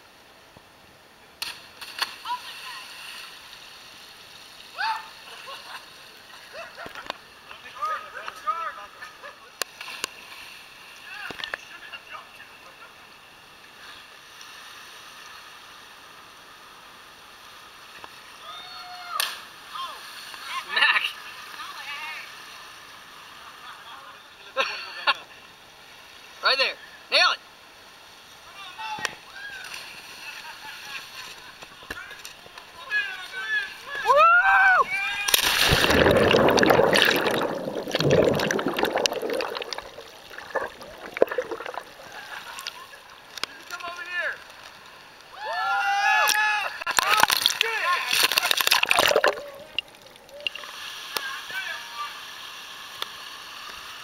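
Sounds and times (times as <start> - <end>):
seawater rushing and splashing: 35.3 - 43.0, 47.0 - 50.0
sea water washing in a cove: 35.3 - 43.5, 46.8 - 54.0.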